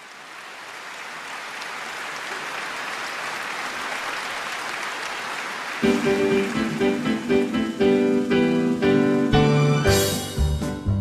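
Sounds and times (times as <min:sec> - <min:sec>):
audience applauding: 0:00.0 - 0:10.2
loud accompaniment chords: 0:05.8 - 0:11.0.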